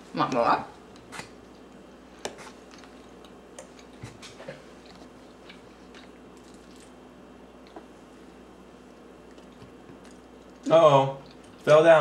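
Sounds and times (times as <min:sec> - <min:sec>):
faint room hum: 0:00.0 - 0:12.0.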